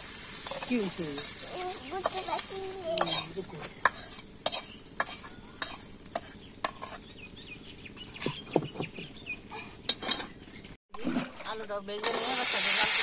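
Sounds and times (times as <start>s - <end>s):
pan clattering down: 0.0s - 7.0s
hot oil sizzling: 0.0s - 7.2s, 12.0s - 13.0s
metal spatula scraping wok: 0.0s - 7.2s, 9.9s - 10.5s.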